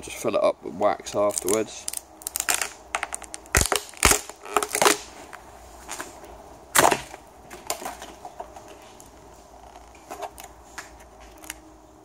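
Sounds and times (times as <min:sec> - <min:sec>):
fibreglass mould cracking: 0:01.2 - 0:09.1.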